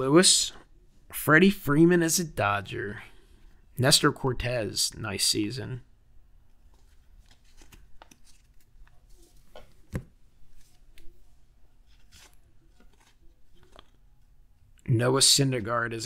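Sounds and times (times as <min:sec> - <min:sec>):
cards sliding and flicking: 0:06.7 - 0:08.8, 0:11.9 - 0:14.0.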